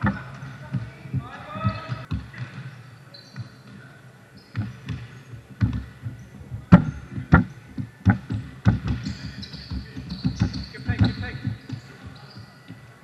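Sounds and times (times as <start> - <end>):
basketball bouncing: 0.0 - 2.8, 4.4 - 12.9
shoe squeaks: 3.0 - 7.6, 8.3 - 13.0.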